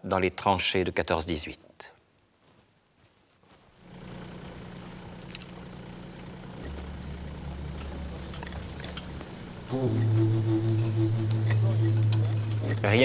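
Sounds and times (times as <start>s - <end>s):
low engine hum: 3.8s - 13.0s
deeper tone: 6.6s - 13.0s.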